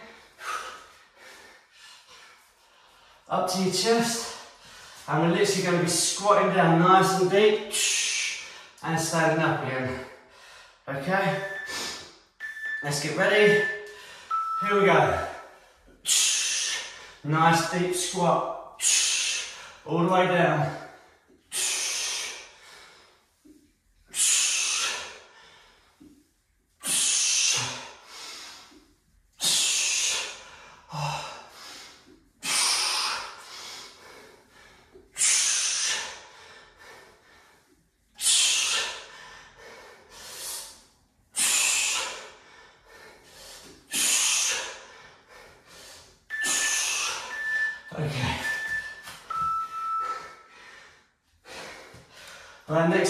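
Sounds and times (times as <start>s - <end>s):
long low timer tone: 11.3s - 11.8s, 12.4s - 15.4s, 46.3s - 50.4s
interval timer beeps: 11.4s - 11.8s, 12.4s - 15.4s, 46.3s - 50.4s
man breathing out hard: 41.4s - 47.4s.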